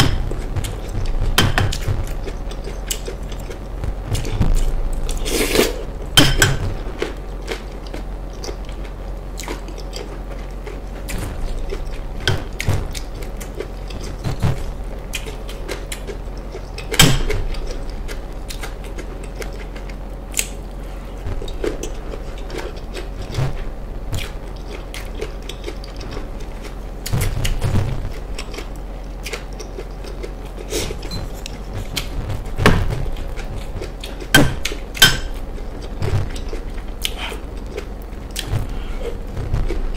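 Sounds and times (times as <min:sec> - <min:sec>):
chewing and mouth sounds: 0:07.0 - 0:27.6, 0:28.2 - 0:32.2, 0:32.9 - 0:39.9.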